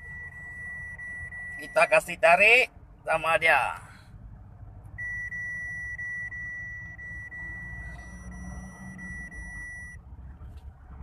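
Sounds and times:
continuous electronic beep: 0:00.0 - 0:02.6, 0:05.0 - 0:10.0
car cabin road rumble: 0:00.0 - 0:11.0.

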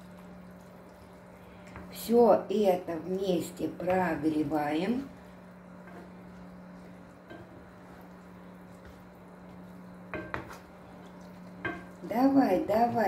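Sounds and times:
low steady hum: 0:00.0 - 0:13.0
pasta squelching in a pan: 0:00.0 - 0:13.0.

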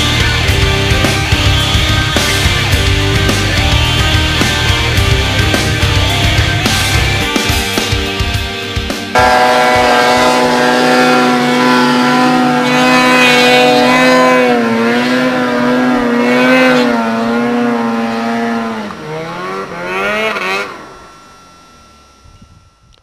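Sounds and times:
snowmobile engine revving: 0:09.1 - 0:22.8.

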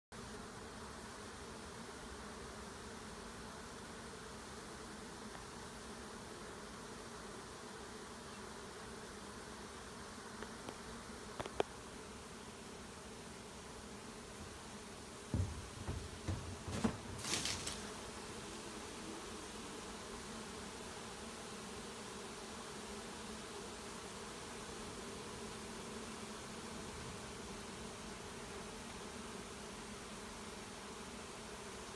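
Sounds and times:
bees buzzing: 0:00.2 - 0:31.9
bumps and rustles: 0:15.2 - 0:17.9.

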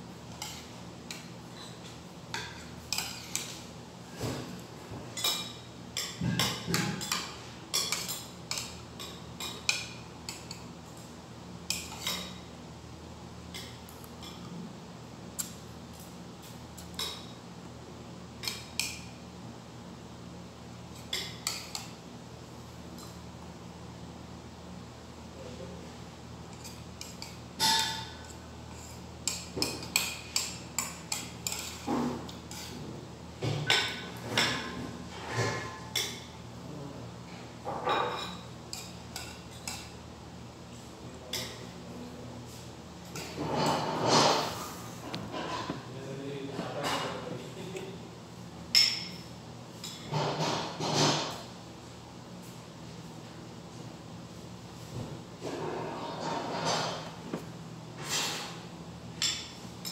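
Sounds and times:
cutlery clinking on a plate: 0:05.2 - 0:10.6, 0:26.6 - 0:32.7
metal spoon clinking on plate: 0:26.6 - 0:28.3.

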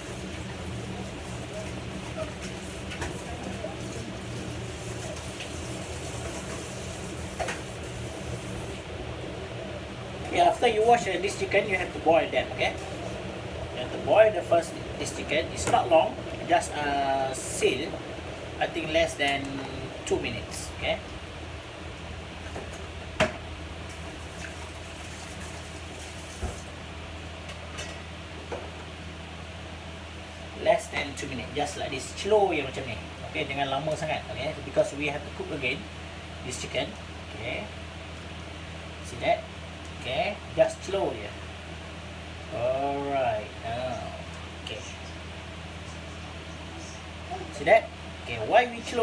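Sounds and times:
water boiling in pan: 0:00.0 - 0:08.9, 0:23.8 - 0:26.8
low kitchen hum: 0:00.0 - 0:49.0.

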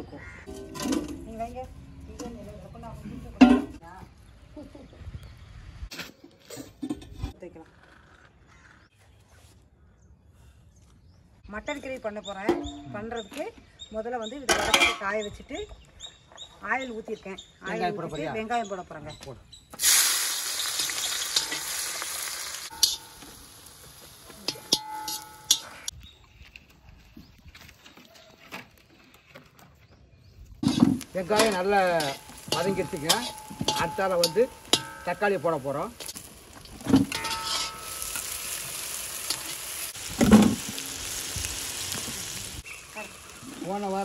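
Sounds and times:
onions sizzling in hot oil: 0:19.8 - 0:25.9, 0:30.6 - 0:44.0
metal spoon scraping a pan: 0:20.8 - 0:21.8, 0:22.7 - 0:23.4, 0:24.4 - 0:25.9, 0:30.6 - 0:38.6.

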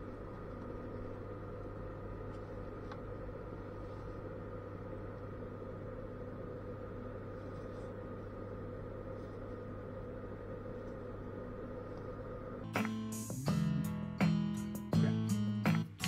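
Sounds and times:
acoustic guitar music: 0:12.7 - 0:16.0.

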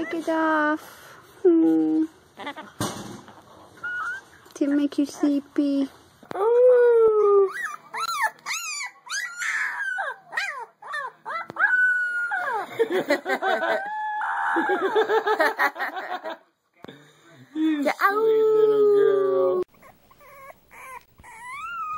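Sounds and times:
puppy howling and yelping: 0:03.8 - 0:04.4, 0:06.6 - 0:12.7, 0:19.6 - 0:21.9.

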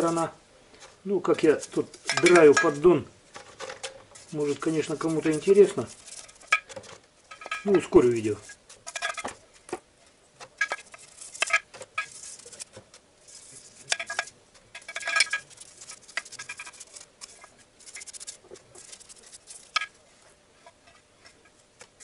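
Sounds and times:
brush scrubbing metal pan: 0:01.2 - 0:09.6, 0:10.5 - 0:22.0
metal pan clattering: 0:01.9 - 0:04.0, 0:06.2 - 0:07.9, 0:08.8 - 0:09.4, 0:13.9 - 0:16.8.

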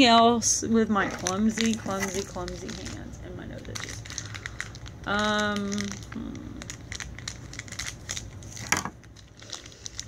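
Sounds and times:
plastic packaging crinkling: 0:00.9 - 0:10.0
person humming: 0:06.1 - 0:06.7.

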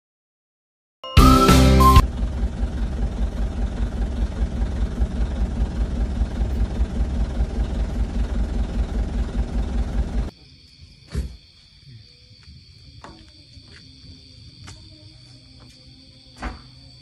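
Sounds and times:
vehicle engine and road rumble: 0:02.0 - 0:10.3.

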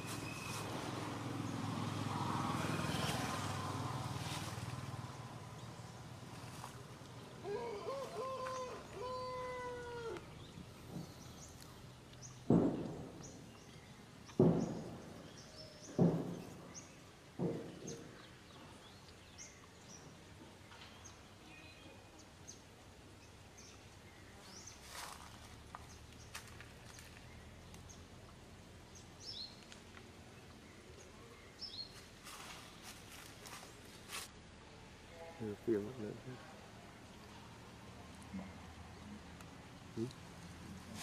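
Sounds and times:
small birds chirping: 0:04.2 - 0:34.3.

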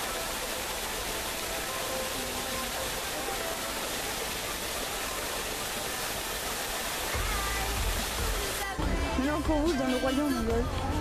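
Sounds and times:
steady rushing hiss: 0:00.0 - 0:11.0.

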